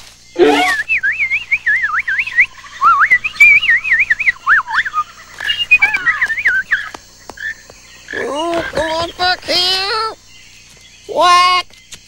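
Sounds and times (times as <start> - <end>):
fast warbling whistle: 0.4 - 6.9.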